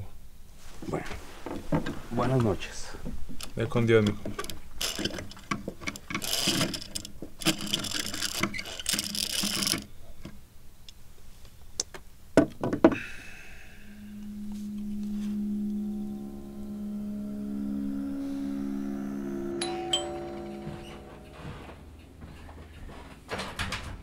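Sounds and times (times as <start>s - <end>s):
low musical drone: 13.0s - 22.3s.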